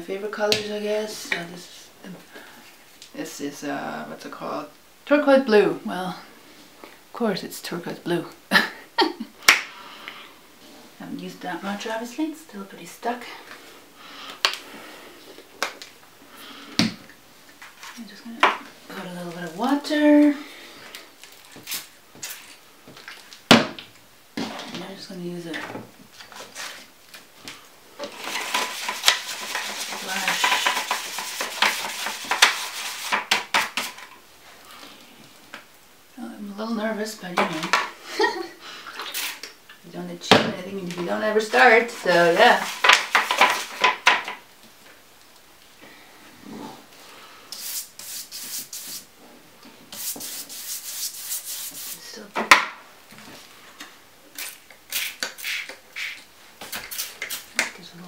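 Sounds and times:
utensil scraping foil tin: 28.0s - 34.1s, 41.4s - 44.0s
paintbrush scrubbing on paper: 28.4s - 33.2s, 47.6s - 49.1s, 49.9s - 52.2s.

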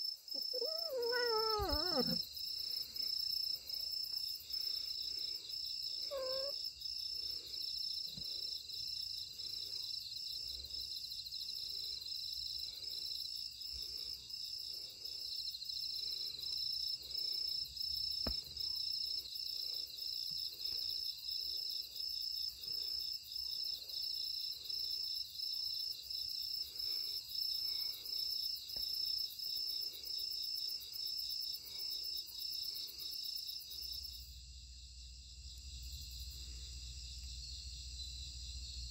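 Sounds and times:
insects chirping: 0.0s - 38.9s
cat crying in pain: 0.4s - 2.2s, 6.1s - 6.6s.

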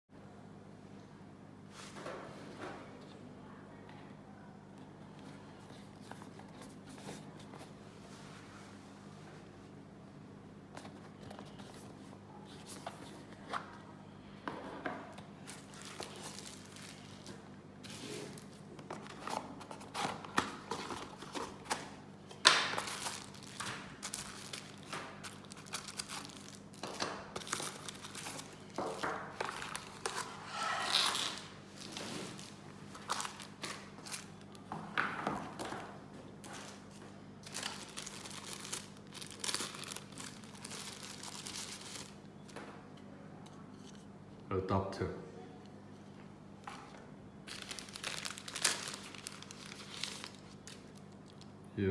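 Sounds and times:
plastic bags crinkling: 15.4s - 34.7s, 36.4s - 42.2s, 47.4s - 51.5s.

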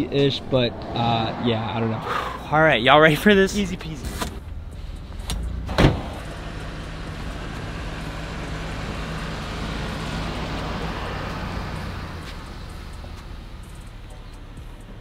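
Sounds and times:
rushing noise: 0.0s - 4.0s
vehicle engine hum: 0.0s - 15.0s.

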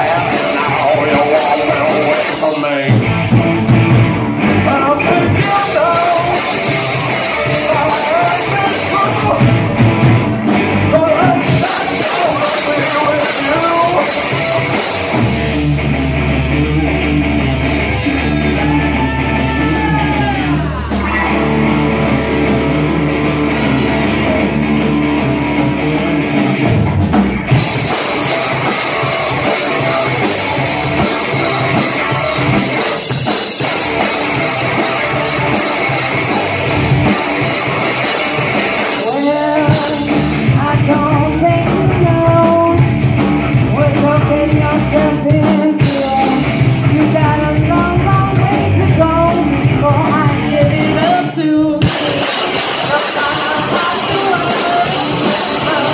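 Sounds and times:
person singing: 0.0s - 3.0s, 4.6s - 9.8s, 10.9s - 14.8s, 17.6s - 22.5s, 28.2s - 33.1s, 38.8s - 43.0s, 43.7s - 55.9s
drum kit: 0.0s - 55.9s
electric guitars: 0.0s - 55.9s.

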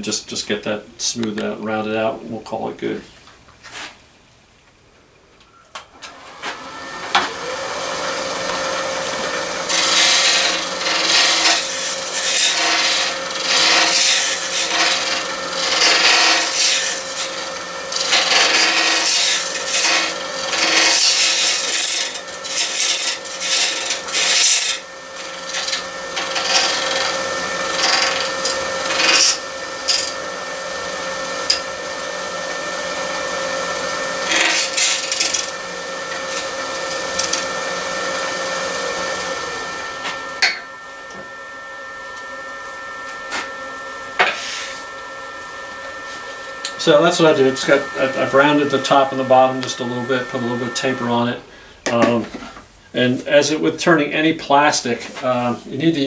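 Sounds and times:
wood lathe humming: 5.9s - 53.5s
turning tool scraping plastic: 9.7s - 30.1s, 34.2s - 35.5s.

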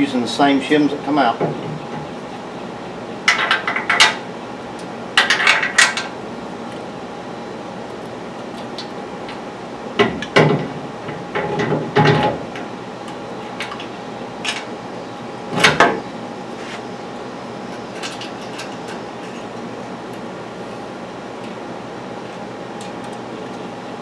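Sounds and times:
steady hum: 0.0s - 24.0s
metal knocks and clatter: 10.0s - 12.4s.

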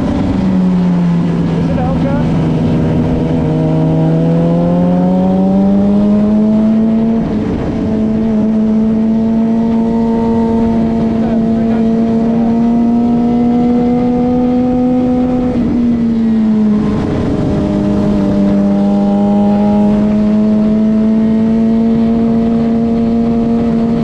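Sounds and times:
motorcycle engine under throttle: 0.0s - 24.0s
wind rush: 0.0s - 24.0s.

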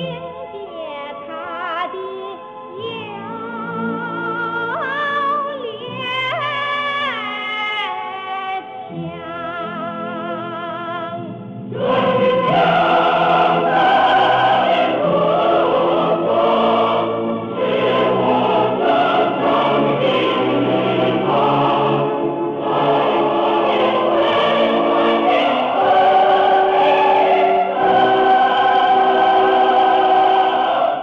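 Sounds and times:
singer with wide vibrato: 0.0s - 31.0s
choir with accompaniment: 11.7s - 31.0s.

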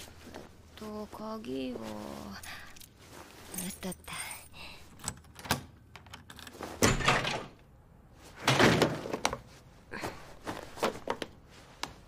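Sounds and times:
door unlocking and opening: 5.0s - 7.6s.

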